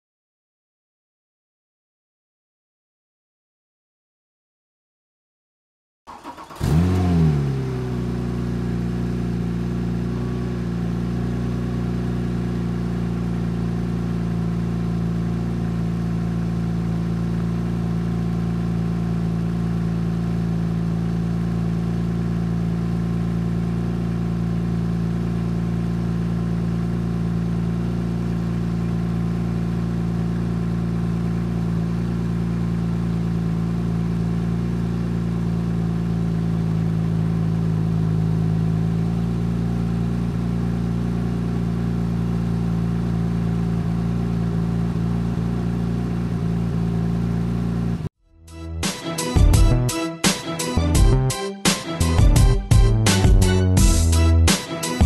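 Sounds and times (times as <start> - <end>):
car engine revving and idling: 6.1 - 48.2.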